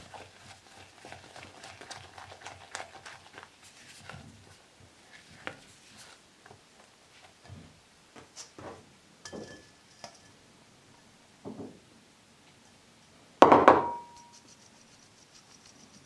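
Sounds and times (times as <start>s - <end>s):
metal sieve knocked on bowl: 13.4s - 14.2s.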